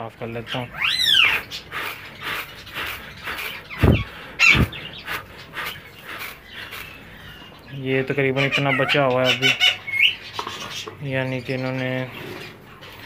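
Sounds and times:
birds calling: 0:00.0 - 0:13.0.

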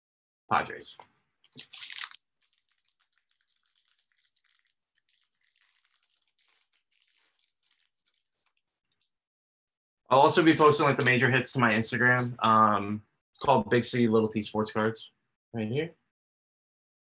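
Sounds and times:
cards crinkling and ticking: 0:01.4 - 0:09.1
foil wrapper rustling: 0:01.5 - 0:09.1.

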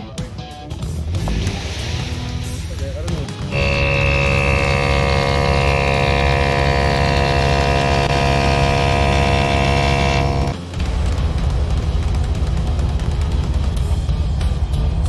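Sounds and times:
air compressor running: 0:03.5 - 0:10.6.

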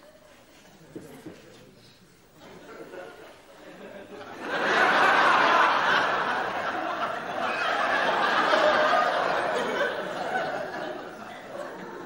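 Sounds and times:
studio audience laughing: 0:02.5 - 0:12.0.

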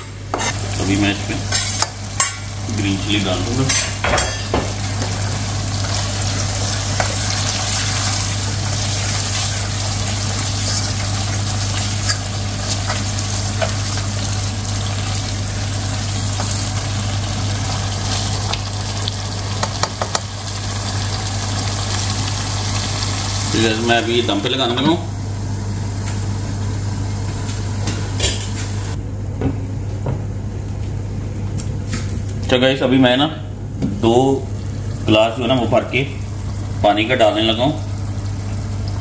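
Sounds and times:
curry sizzling in a pot: 0:00.2 - 0:24.6, 0:34.4 - 0:39.0.

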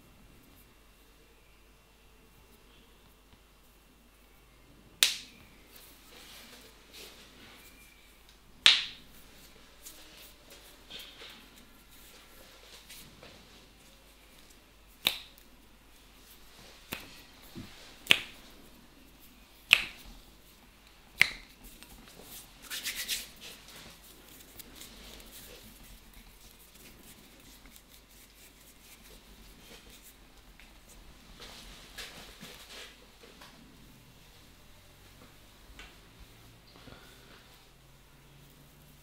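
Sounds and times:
loud snaps: 0:05.0 - 0:05.4, 0:08.6 - 0:09.0, 0:15.0 - 0:15.4, 0:19.7 - 0:20.1.

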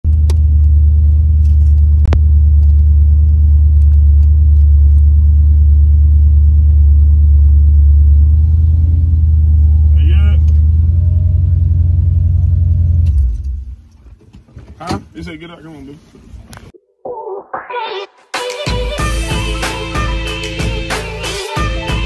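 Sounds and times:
motor vehicle low rumble: 0:00.0 - 0:16.7.

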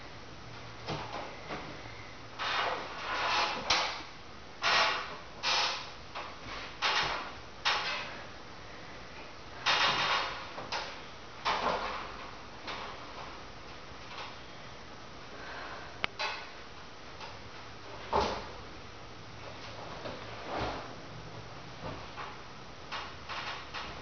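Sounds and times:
person breathing hard: 0:15.3 - 0:16.1.

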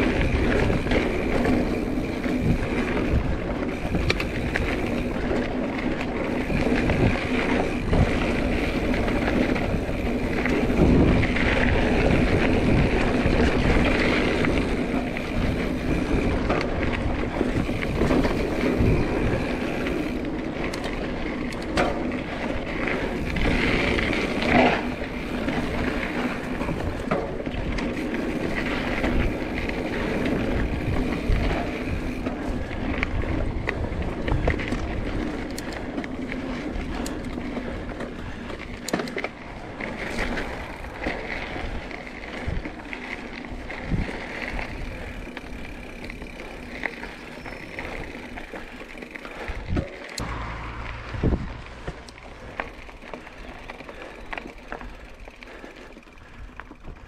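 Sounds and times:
bike tyres rolling and rattling: 0:00.0 - 0:57.0
wind on microphone: 0:06.3 - 0:20.2, 0:49.4 - 0:53.7.

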